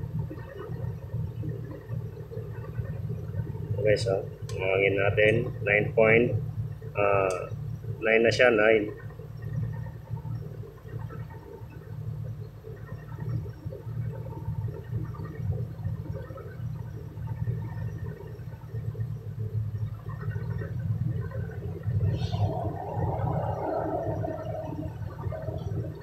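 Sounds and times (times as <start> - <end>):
truck diesel engine idling: 3.8 - 8.9.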